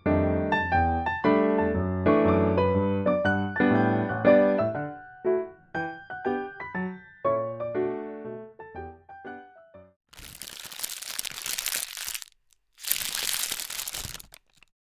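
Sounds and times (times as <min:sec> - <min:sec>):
piano music: 0:00.0 - 0:09.9
loud crinkling crackling: 0:10.1 - 0:14.7.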